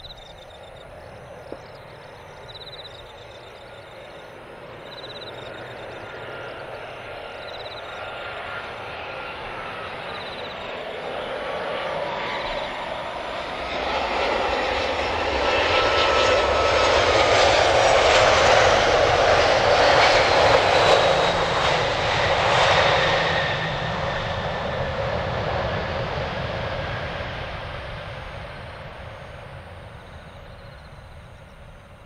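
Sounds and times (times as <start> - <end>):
jet engine rumble: 0.0 - 32.0
jet engine whine falling in pitch: 0.0 - 32.0.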